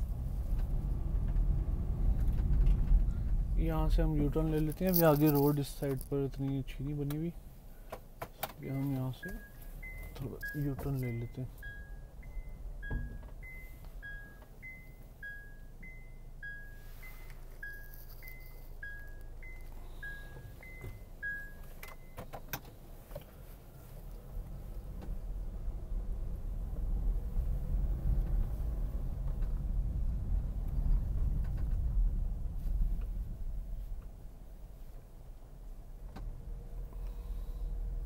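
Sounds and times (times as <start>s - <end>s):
car engine and tyre rumble: 0.0s - 38.0s
reverse warning beeps: 9.1s - 22.2s.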